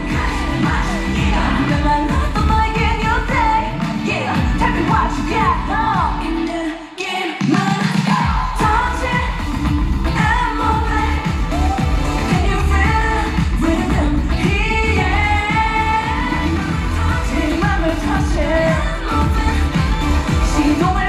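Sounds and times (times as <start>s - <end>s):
pop backing track with heavy bass: 0.0s - 6.8s, 7.5s - 21.0s
woman singing into microphone: 0.0s - 21.0s.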